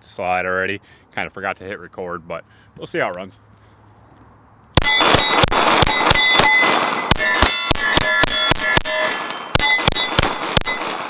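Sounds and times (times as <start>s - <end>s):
pistol shots: 4.8s - 11.0s.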